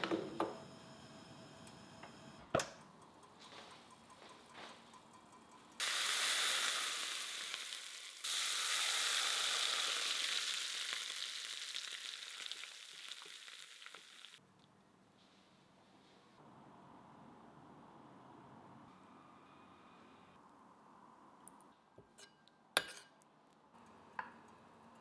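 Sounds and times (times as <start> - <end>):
hot oil sizzling loudly: 5.8 - 14.4.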